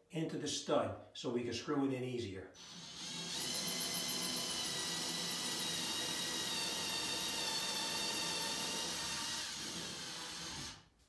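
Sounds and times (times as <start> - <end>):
cordless drill whining: 2.6 - 10.8.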